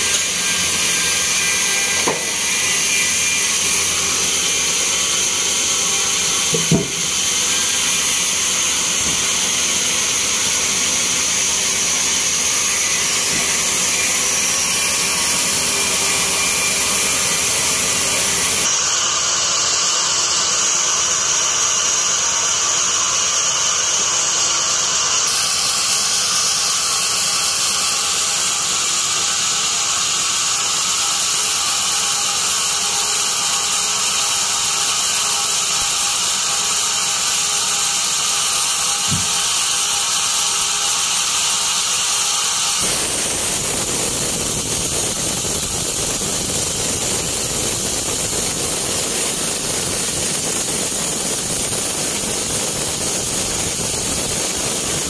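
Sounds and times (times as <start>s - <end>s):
band sawmill running: 0.0s - 55.0s
sharp knock: 6.5s - 7.1s.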